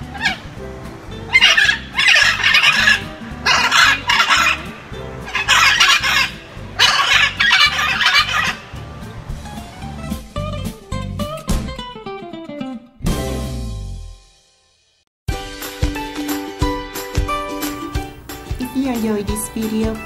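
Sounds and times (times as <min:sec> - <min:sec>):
macaws squawking: 0:00.0 - 0:00.6, 0:01.2 - 0:08.8.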